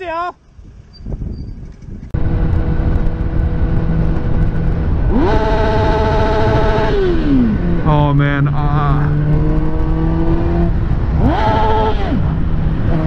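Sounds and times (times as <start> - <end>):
motorcycle engine running: 0.4 - 13.0
wind rushing over microphone: 0.4 - 13.0.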